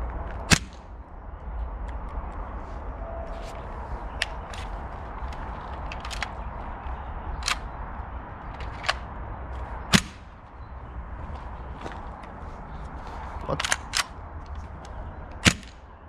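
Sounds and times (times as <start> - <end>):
wind rumble on microphone: 0.0 - 16.0
airsoft gun clicks and clacks: 4.2 - 6.5, 7.4 - 7.7, 8.5 - 9.1, 13.5 - 15.8.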